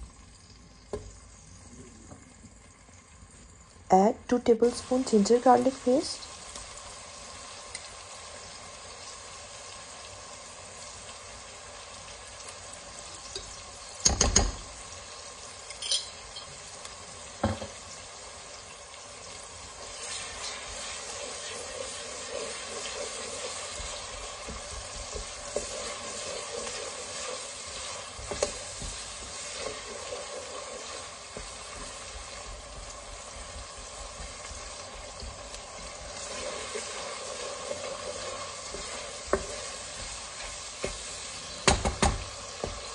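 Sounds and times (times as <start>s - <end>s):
onion sizzling in hot oil: 0.0s - 42.9s
wooden spatula stirring: 19.8s - 42.9s.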